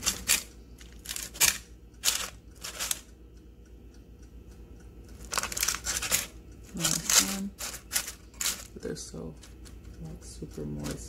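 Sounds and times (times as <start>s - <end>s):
parchment paper crinkling: 0.0s - 3.1s, 5.1s - 9.9s.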